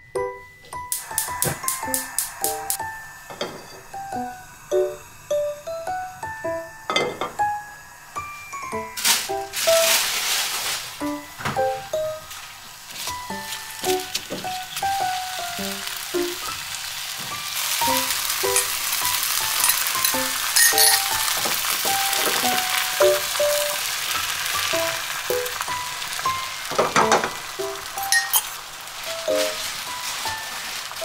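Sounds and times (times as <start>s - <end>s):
background music: 0.0s - 10.0s, 13.1s - 28.3s
egg sizzling in frying pan: 0.8s - 31.0s
egg pouring into pan: 0.9s - 6.1s, 8.1s - 31.0s.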